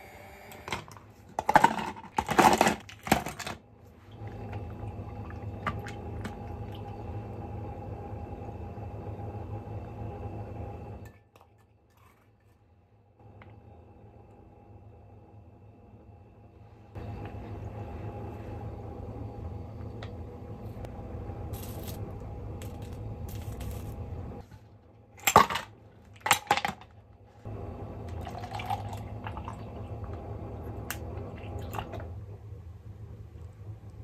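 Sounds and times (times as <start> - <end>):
steady low hum: 0.0 - 34.0
milk pouring over ice: 28.1 - 30.1.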